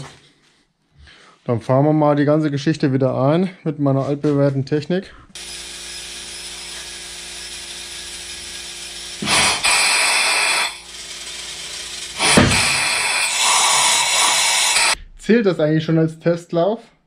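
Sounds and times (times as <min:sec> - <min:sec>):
compressed air hissing: 0:07.9 - 0:15.0.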